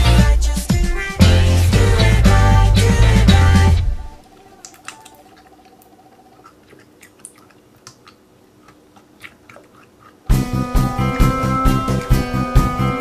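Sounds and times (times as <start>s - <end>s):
background music: 0.0s - 4.3s, 10.3s - 13.0s
slime squishing: 4.2s - 10.3s.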